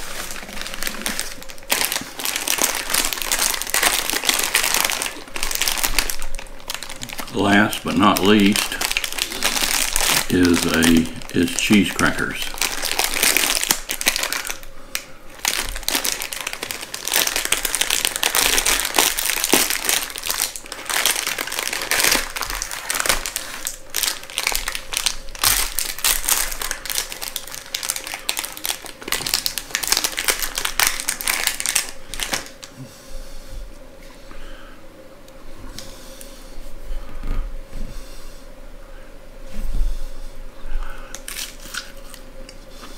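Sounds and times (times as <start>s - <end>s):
plastic wrapper crinkling: 0.0s - 32.7s, 41.1s - 42.2s.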